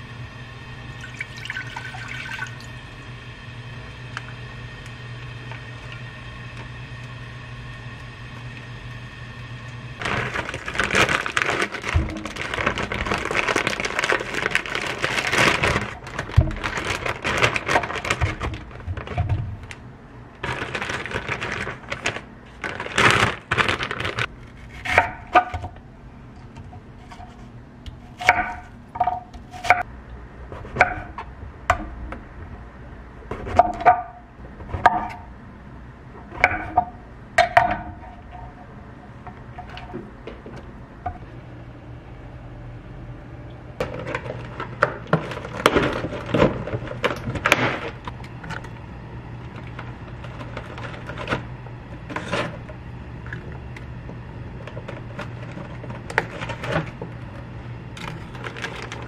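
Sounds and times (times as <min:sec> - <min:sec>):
steady low hum: 0:00.0 - 0:59.0
water running: 0:00.9 - 0:03.0.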